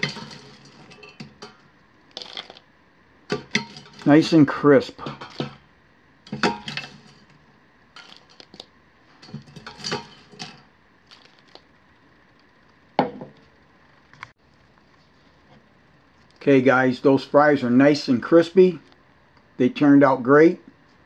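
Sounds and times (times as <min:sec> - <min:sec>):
metal tongs clinking on steel pot: 0:00.0 - 0:01.6, 0:03.3 - 0:04.2, 0:06.3 - 0:07.2, 0:09.2 - 0:10.6.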